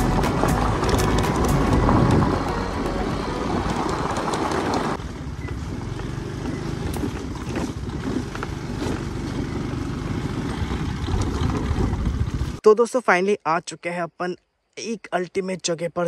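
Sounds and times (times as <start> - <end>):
vehicle rumbling on gravel: 0.0 - 12.6.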